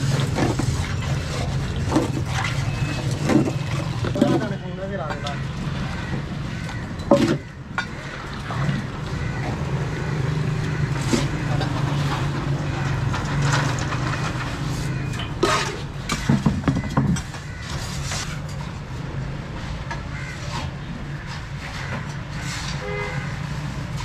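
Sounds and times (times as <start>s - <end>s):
sharp knocks and clatter: 0.0s - 2.6s, 6.6s - 8.1s, 10.7s - 18.6s.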